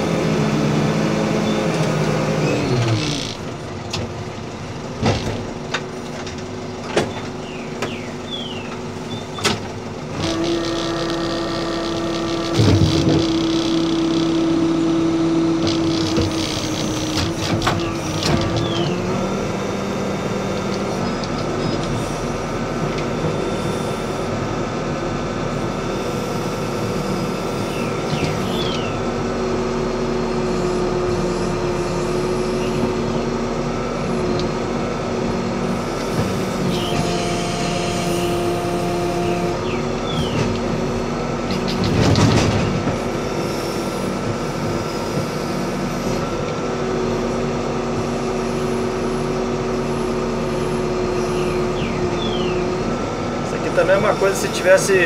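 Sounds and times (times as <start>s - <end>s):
diesel engine running: 0.0s - 55.0s
loud clunk: 41.5s - 43.0s.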